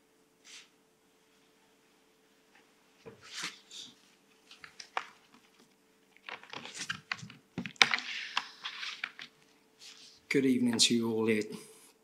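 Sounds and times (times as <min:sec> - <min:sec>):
faint steady hum: 0:00.0 - 0:12.0
paper rustling: 0:03.1 - 0:10.2.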